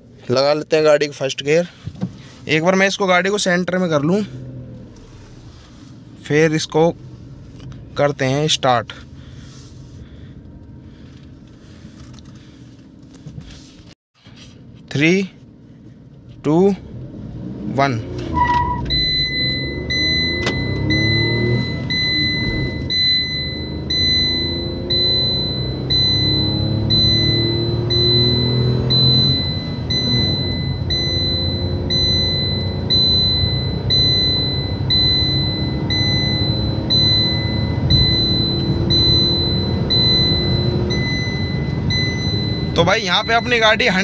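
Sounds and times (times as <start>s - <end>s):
car engine accelerating: 16.8s - 44.0s
short high beep: 18.4s - 44.0s.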